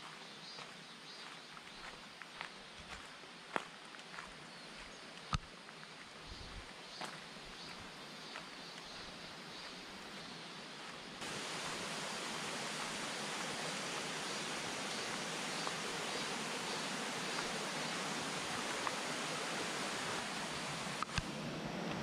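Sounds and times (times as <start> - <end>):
stream rushing over rocks: 11.2 - 22.0.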